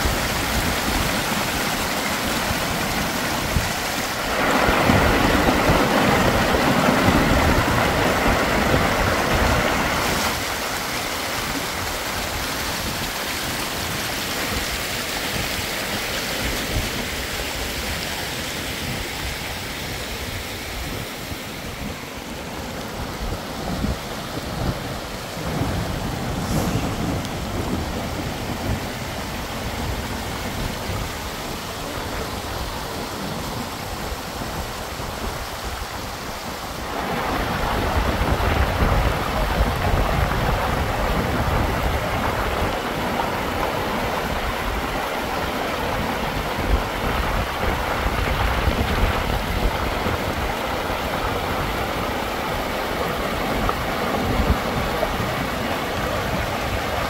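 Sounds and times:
floodwater rushing: 0.0s - 57.0s
rain falling: 0.0s - 57.0s.

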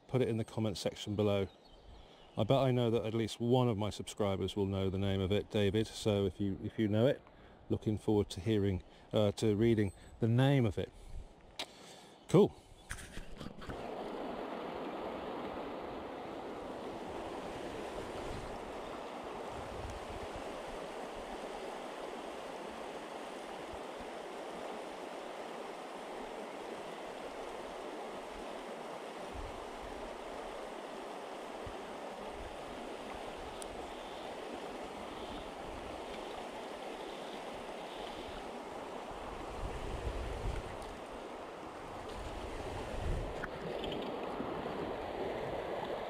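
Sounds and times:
shallow river rushing: 13.7s - 46.0s
wind rumble on microphone: 16.7s - 18.8s, 19.4s - 20.6s, 39.3s - 40.9s, 41.9s - 45.6s.

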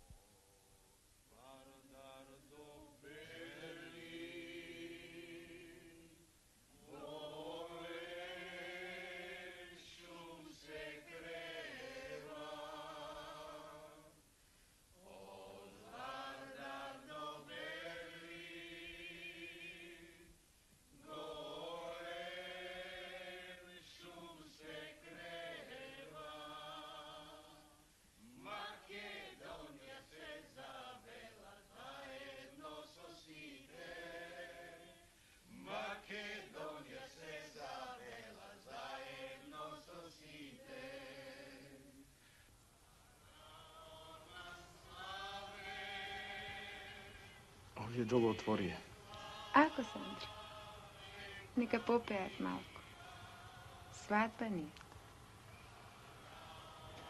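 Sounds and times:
person singing unaccompanied: 43.3s - 53.9s.

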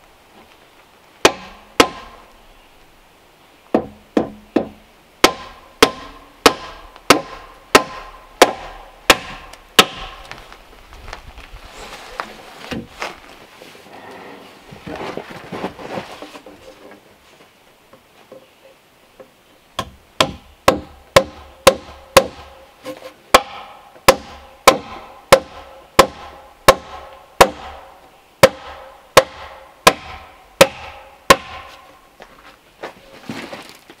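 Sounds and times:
quiet handling: 10.2s - 19.4s
hammer blows ringing: 23.4s - 31.8s.

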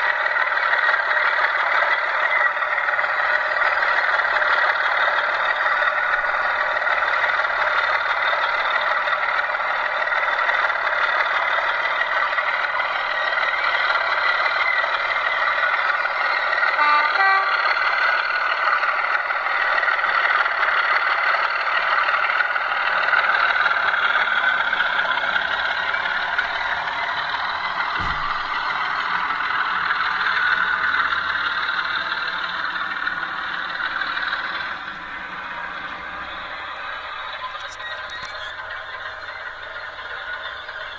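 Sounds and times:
diesel engine running: 0.0s - 40.9s
brief tones: 16.8s - 17.8s, 37.5s - 38.6s.

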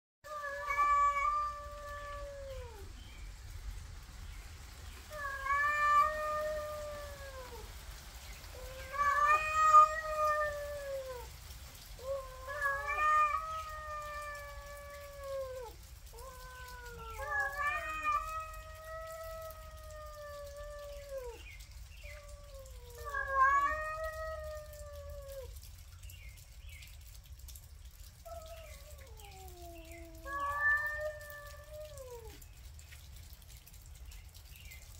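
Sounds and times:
cats yowling: 0.3s - 3.0s, 5.0s - 7.8s, 8.5s - 11.3s, 12.0s - 25.6s, 28.1s - 32.4s.

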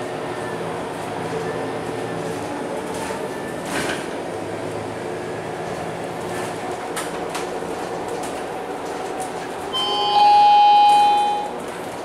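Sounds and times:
bus running noise: 0.0s - 12.0s
electronic stop-request chime: 9.8s - 11.5s.

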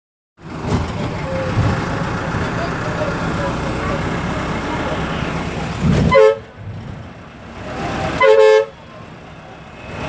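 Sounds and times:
vehicle horn honking: 6.1s - 6.5s, 8.1s - 8.8s.

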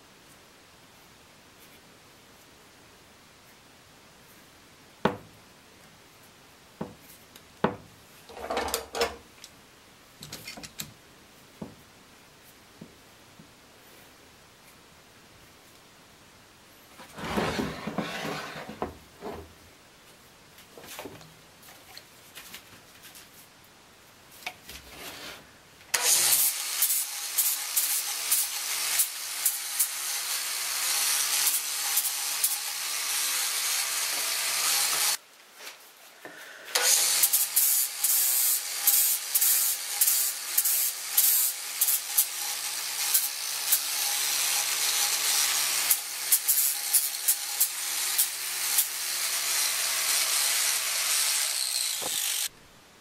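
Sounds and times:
clamps clicking and knocking: 8.3s - 9.2s
angle grinder grinding wood: 17.0s - 19.4s, 26.0s - 35.2s, 36.8s - 52.5s.

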